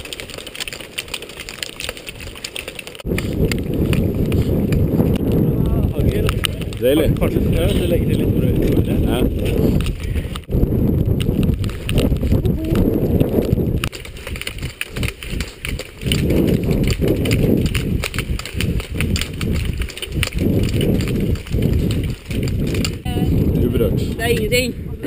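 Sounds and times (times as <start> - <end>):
ski poles planting on gravel: 0.0 - 8.0, 11.3 - 23.0
footfalls on gravel: 0.0 - 10.5, 11.2 - 23.1
wind rumble on microphone: 1.3 - 25.0.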